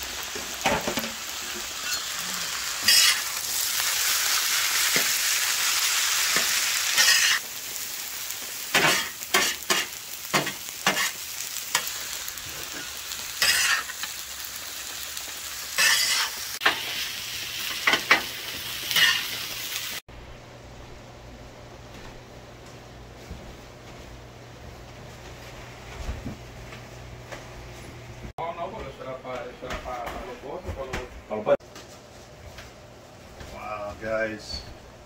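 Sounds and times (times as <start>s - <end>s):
food sizzling on a griddle: 0.0s - 20.0s
metal spatulas scraping and clacking: 2.8s - 3.3s, 6.4s - 7.4s, 8.8s - 11.2s, 13.4s - 13.9s, 15.8s - 16.8s.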